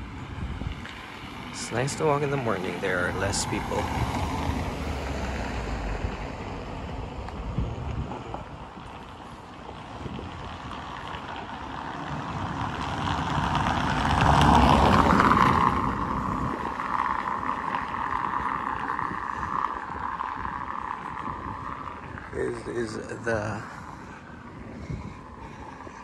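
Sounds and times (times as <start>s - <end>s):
car driving past: 1.2s - 8.6s, 11.9s - 23.0s.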